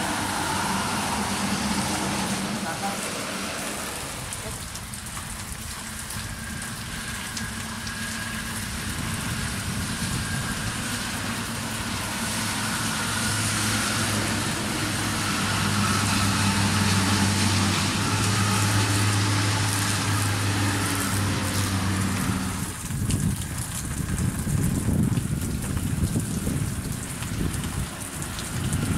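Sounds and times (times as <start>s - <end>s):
bus engine drone: 0.0s - 4.8s, 6.3s - 22.9s
rain: 0.0s - 28.9s
tyres hissing on wet road: 0.0s - 28.9s.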